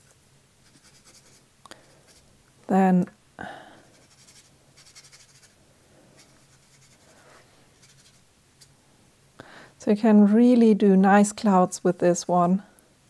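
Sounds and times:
brush scratching on paper: 0.0s - 1.4s, 2.0s - 2.3s, 3.8s - 5.6s, 6.2s - 8.7s.

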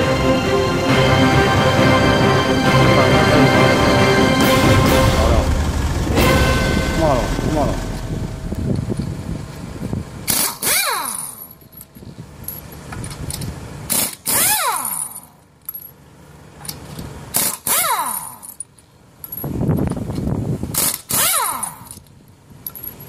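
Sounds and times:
steady low hum: 0.0s - 10.3s
pneumatic impact wrench bursts: 10.3s - 11.4s, 13.9s - 15.2s, 17.3s - 18.4s, 20.7s - 22.0s.

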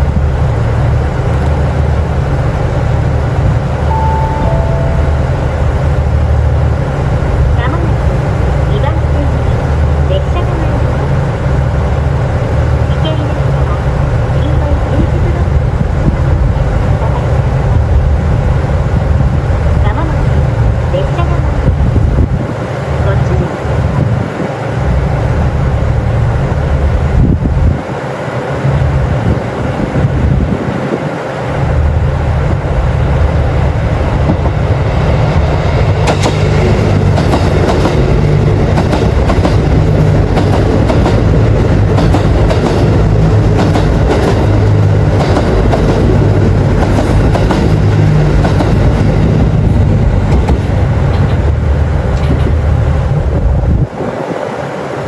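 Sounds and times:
diesel railcar engines running: 0.0s - 55.0s
diesel train passing: 0.0s - 55.0s
train wheels clicking over rail joints: 35.2s - 52.8s.

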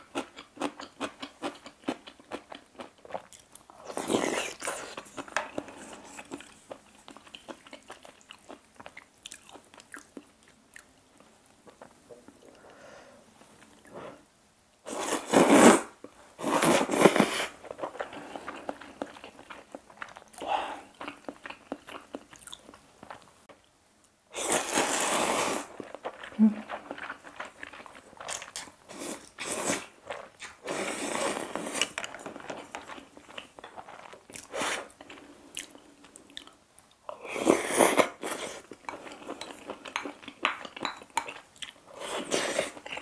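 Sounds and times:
chewing with wet mouth clicks: 4.5s - 12.4s, 18.0s - 23.3s, 38.7s - 41.8s
slurping noodles: 14.9s - 17.6s, 24.4s - 25.8s.

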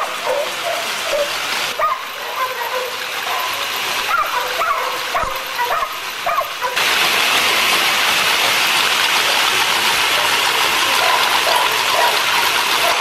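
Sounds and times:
dog treadmill rattling: 0.0s - 6.8s, 8.4s - 13.0s
dog whining: 0.0s - 6.8s.

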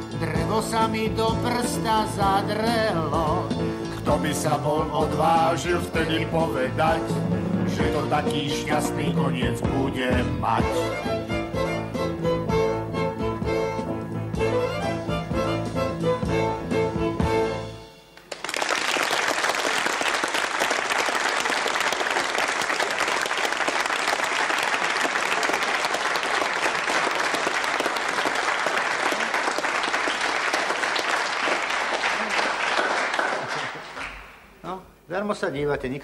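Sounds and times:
instrumental music: 0.0s - 18.4s
audience applauding: 18.2s - 34.3s.

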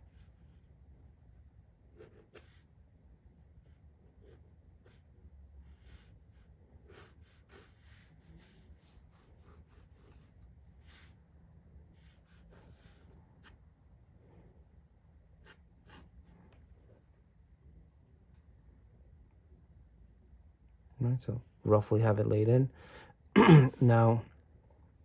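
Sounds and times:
pencil scratching on paper: 1.9s - 2.8s, 3.6s - 11.2s, 12.0s - 13.7s, 15.4s - 16.3s.

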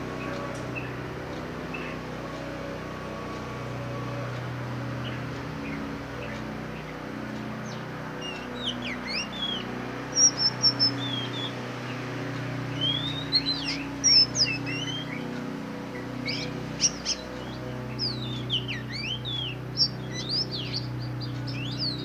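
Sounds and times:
steady low hum: 0.0s - 22.0s
bird singing whistles: 10.2s - 11.5s, 12.8s - 15.2s.

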